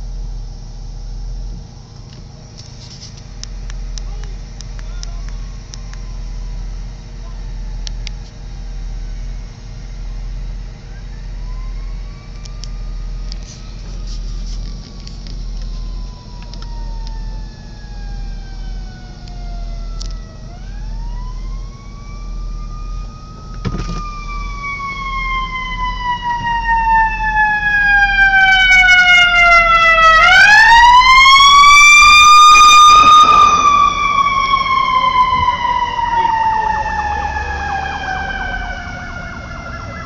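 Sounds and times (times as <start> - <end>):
ambulance siren wailing: 5.2 - 8.0, 10.9 - 40.0.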